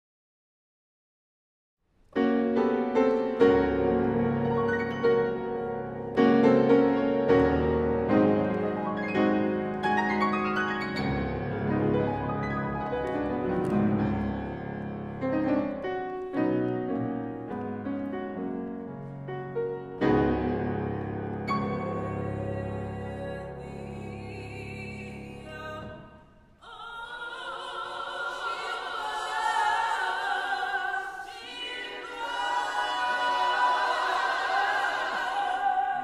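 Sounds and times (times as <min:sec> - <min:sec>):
grand piano chords: 0:02.1 - 0:26.4.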